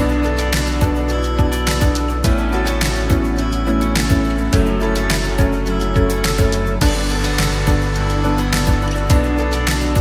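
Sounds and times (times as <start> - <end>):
sustained instrumental chords: 0.0 - 10.0.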